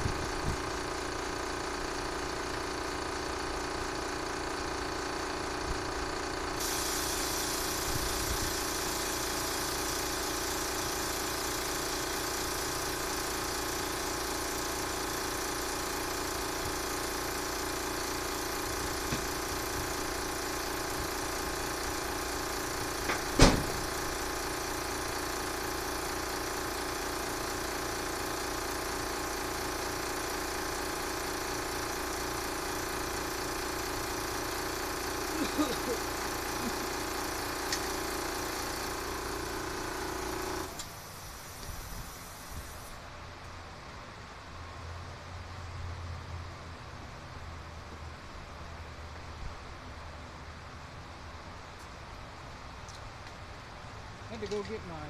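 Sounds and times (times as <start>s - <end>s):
electric fan humming: 0.0s - 43.7s
sharp knock: 23.1s - 23.8s.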